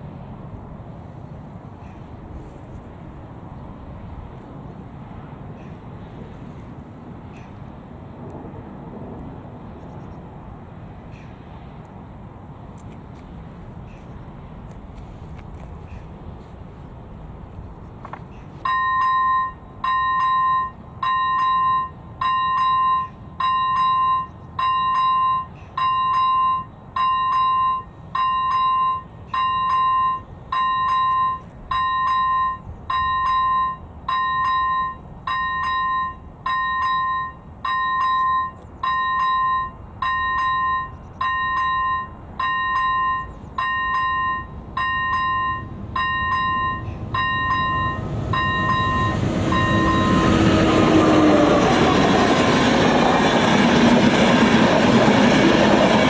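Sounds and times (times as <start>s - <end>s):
train rumble: 0.0s - 56.0s
electronic level crossing bell: 18.7s - 50.2s.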